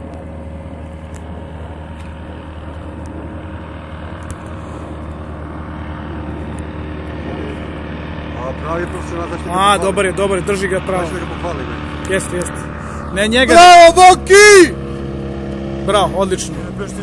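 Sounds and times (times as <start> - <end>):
distant engine and propeller: 0.0 - 17.0.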